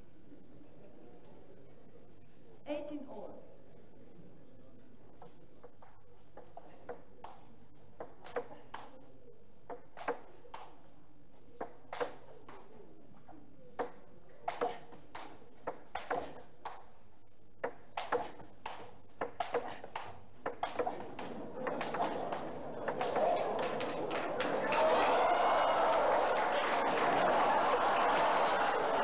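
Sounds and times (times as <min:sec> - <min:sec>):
table tennis ball clicking: 0:11.6 - 0:12.7, 0:13.8 - 0:16.9, 0:17.6 - 0:24.6.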